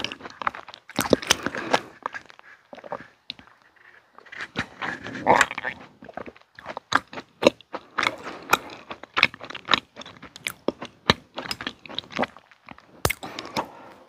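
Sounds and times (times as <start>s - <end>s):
person chewing food: 0.0s - 14.0s.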